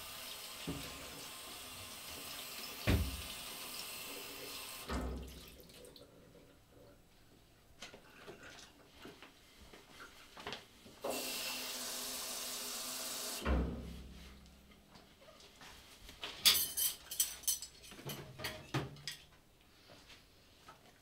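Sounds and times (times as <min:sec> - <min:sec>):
plates and cutlery clinking: 0:16.4 - 0:19.3.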